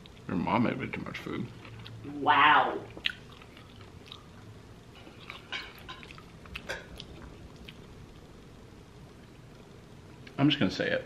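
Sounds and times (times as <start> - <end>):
person chewing food: 1.5 - 2.0, 2.9 - 8.3.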